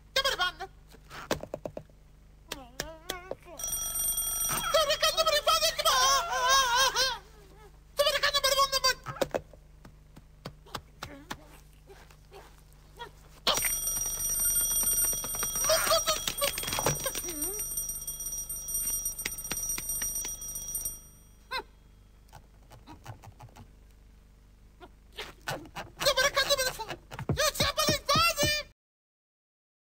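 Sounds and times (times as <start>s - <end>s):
alarm clock bell ringing: 3.6s - 6.7s, 13.5s - 21.6s.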